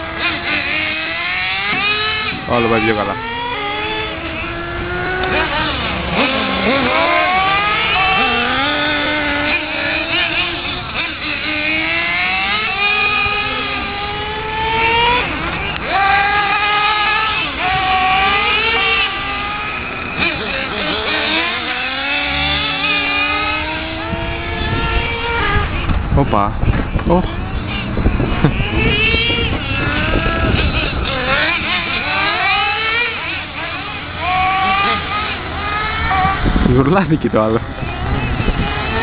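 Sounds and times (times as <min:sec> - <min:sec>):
model car motors revving: 0:00.0 - 0:39.0.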